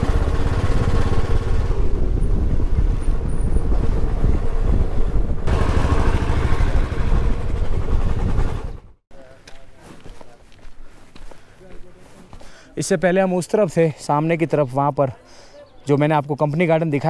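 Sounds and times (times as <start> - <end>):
motorbike engine running: 0.0 - 9.0
wind buffeting microphone: 0.0 - 9.0.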